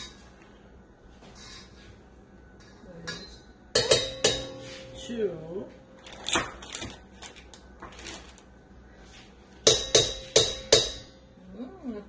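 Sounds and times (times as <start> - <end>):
utensil knocking on metal bowl: 3.1 - 4.6.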